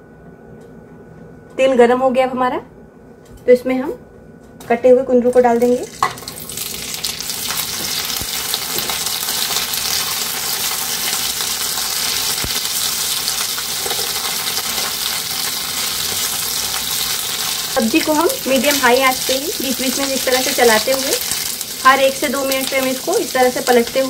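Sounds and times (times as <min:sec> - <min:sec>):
vegetables sizzling in hot oil: 0:05.6 - 0:24.0.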